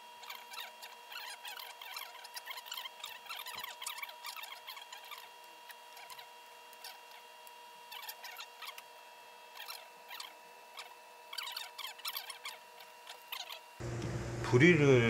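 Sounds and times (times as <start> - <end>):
faint electrical whine: 0.0 - 15.0.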